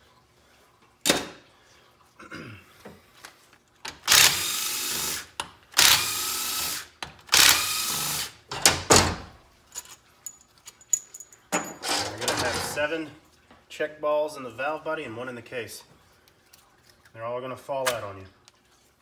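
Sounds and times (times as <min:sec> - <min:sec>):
cordless drill spinning out bolts: 0:04.0 - 0:08.4.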